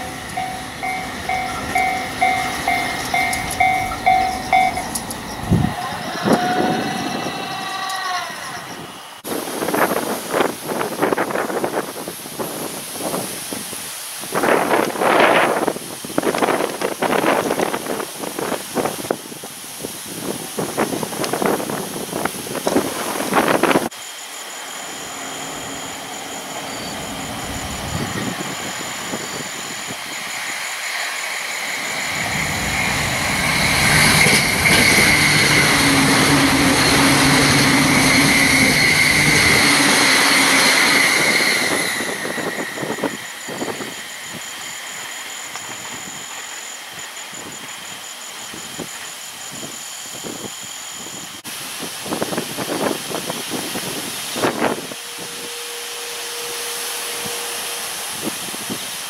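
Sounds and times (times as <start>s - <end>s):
steady high tone: 0.0s - 9.2s, 22.8s - 51.4s, 54.1s - 59.0s
electric train passing: 0.0s - 59.0s
wind buffeting the microphone: 8.7s - 23.9s, 49.6s - 55.5s.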